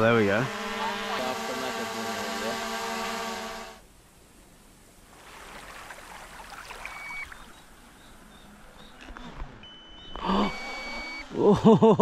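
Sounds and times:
water and breeze hiss: 0.0 - 9.0
short electronic beep: 6.9 - 7.4, 9.6 - 11.3.

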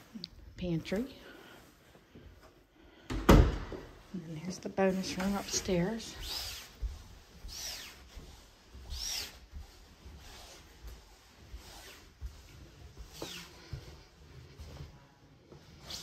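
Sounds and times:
footsteps on carpeted stairs: 0.3 - 15.8.

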